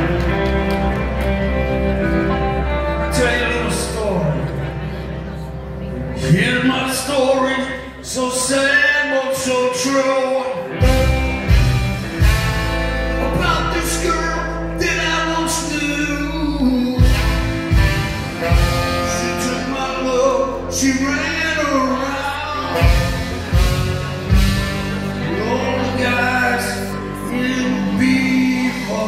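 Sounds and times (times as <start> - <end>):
live rock band playing: 0.0 - 29.0
lead vocals: 5.9 - 11.7, 13.1 - 17.8, 18.4 - 29.0
saxophone: 10.7 - 13.6, 15.5 - 29.0.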